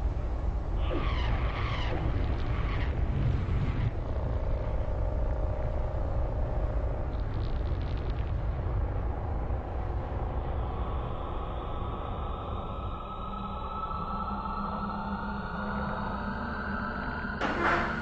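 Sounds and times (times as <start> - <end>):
low rumble: 0.0 - 14.3.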